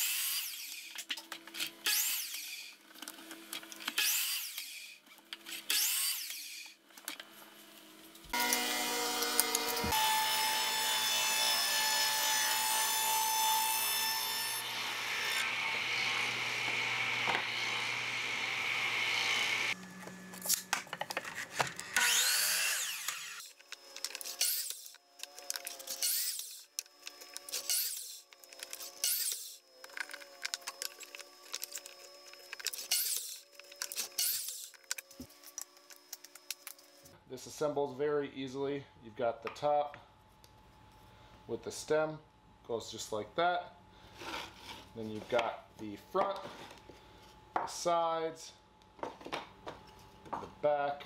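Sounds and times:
electric miter saw cutting wood: 0.0 - 0.9, 1.7 - 2.8, 3.4 - 6.7, 8.3 - 20.7, 21.4 - 35.3.

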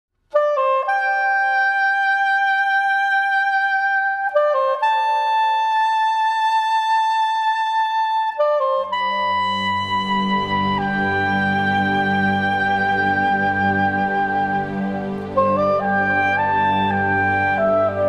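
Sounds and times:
slow melody of long held notes: 8.2 - 18.0
low sustained accompaniment: 9.0 - 18.0.

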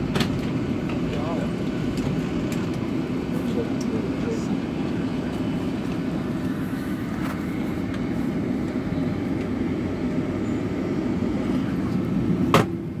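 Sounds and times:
airliner cabin rumble: 0.0 - 13.0.

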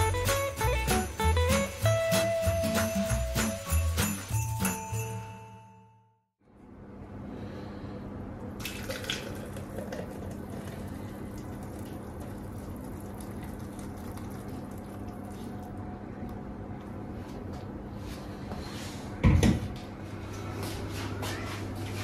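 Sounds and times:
thick smoothie pouring: 8.6 - 15.8.

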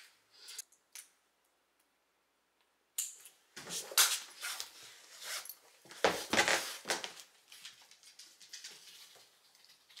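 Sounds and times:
dog paws scuffing on floor: 3.6 - 8.0.

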